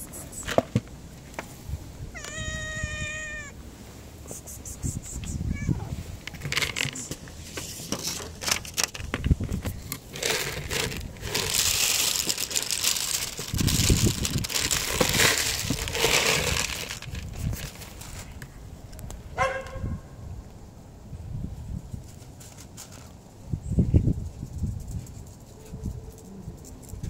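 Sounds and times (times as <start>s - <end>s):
handling knocks and clicks: 6.2s - 11.5s
kibble rattling onto plastic plate: 6.4s - 7.0s, 8.0s - 17.9s.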